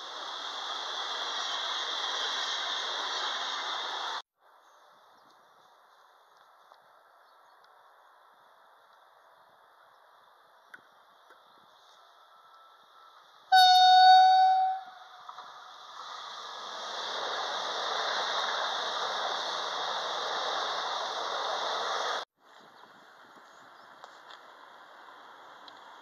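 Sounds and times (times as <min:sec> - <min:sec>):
train wheel and running noise: 0:00.0 - 0:04.2, 0:05.3 - 0:22.2
train horn blast: 0:13.5 - 0:15.3.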